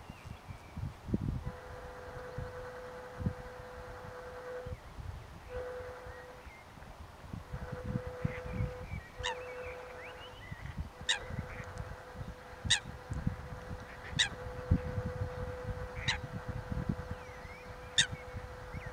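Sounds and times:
faint steady hum: 0.0s - 18.9s
waterbird calls: 8.0s - 18.9s.

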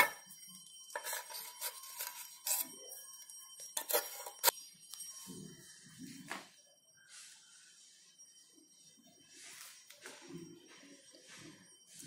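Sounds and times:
metal spoon scraping a steel plate: 0.0s - 0.3s, 0.9s - 3.0s, 3.6s - 4.6s.

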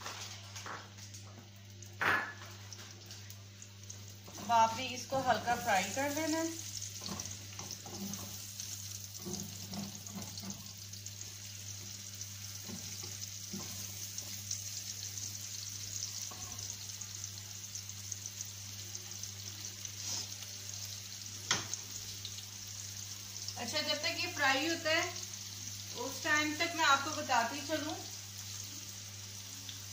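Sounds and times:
onions sizzling in oil: 0.0s - 29.9s
spatula stirring in a pan: 3.9s - 18.5s, 19.1s - 22.3s.

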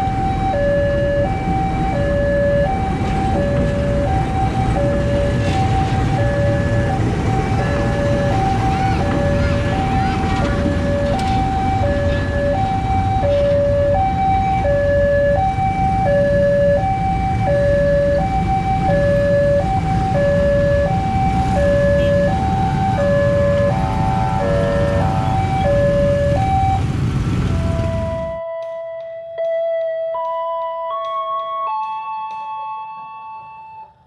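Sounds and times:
two-tone crossing alarm: 0.0s - 26.9s, 27.5s - 34.0s
engine rumble: 0.0s - 28.4s.

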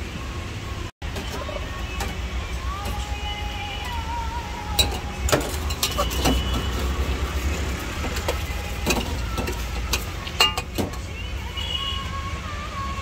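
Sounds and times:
spoon clinking on metal pots: 4.8s - 7.0s, 8.0s - 11.0s.

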